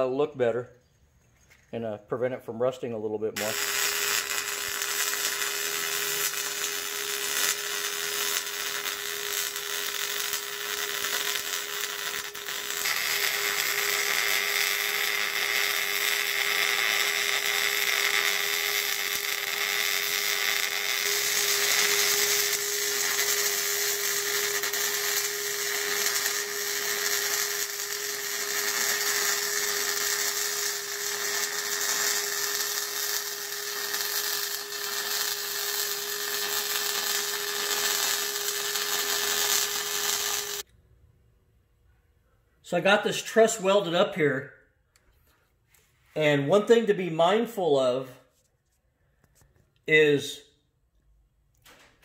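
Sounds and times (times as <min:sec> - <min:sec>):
welding arc hissing: 0:03.4 - 0:40.7.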